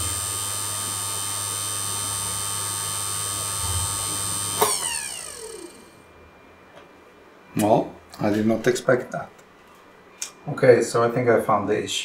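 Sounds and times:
spindle motor whining: 0.0 - 6.0.

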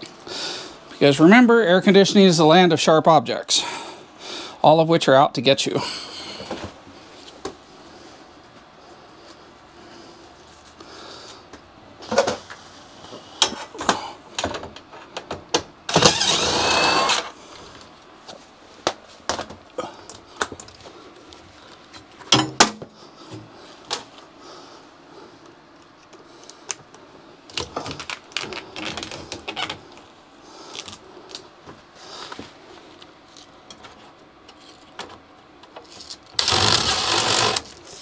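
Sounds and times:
harsh metal scraping: 36.4 - 37.7.

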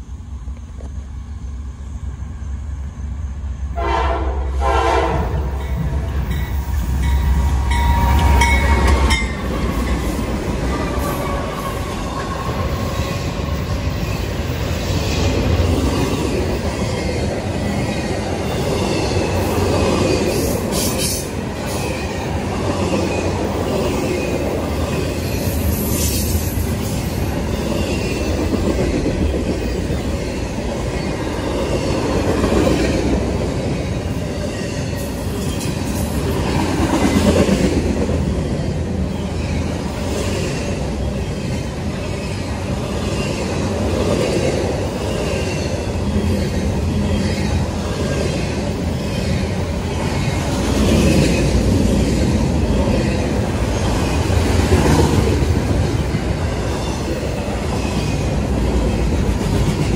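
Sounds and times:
diesel locomotive engines rumbling: 0.0 - 59.9
train horn: 3.8 - 5.6, 10.6 - 12.4
train wheels rumbling and clicking: 5.4 - 59.9.

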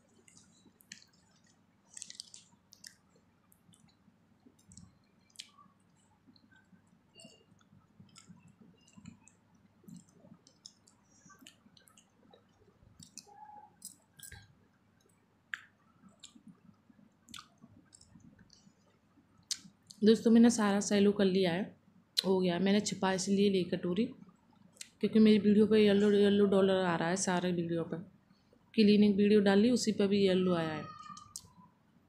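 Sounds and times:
wet mouth chewing sounds: 0.1 - 20.0.

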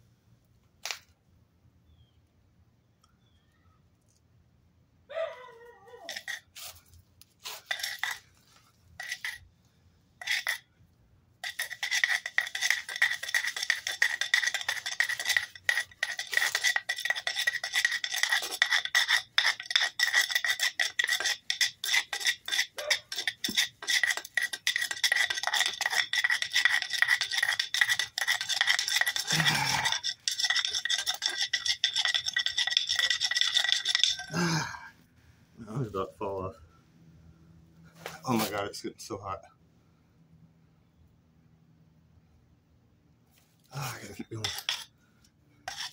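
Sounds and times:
wooden board scraping on concrete: 6.1 - 9.4, 10.2 - 10.6, 11.4 - 34.4, 43.9 - 44.9, 45.7 - 45.9.

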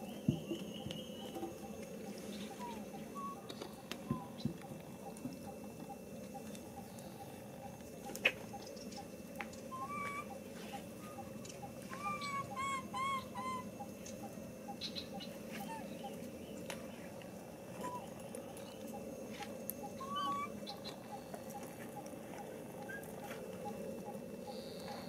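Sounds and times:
baby monkey squeaky coo calls: 2.6 - 3.4, 9.7 - 10.4, 11.9 - 13.7, 15.6 - 15.9, 17.8 - 18.1, 20.0 - 20.5.

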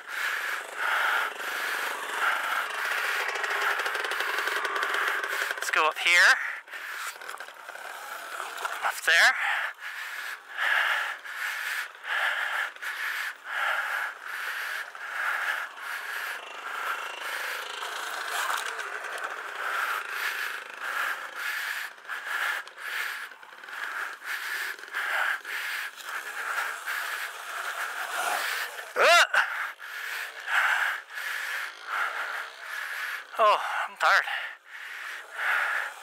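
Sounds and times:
electric dirt bike motor whine: 0.2 - 5.7, 6.9 - 8.8, 10.4 - 29.0, 30.3 - 33.4.

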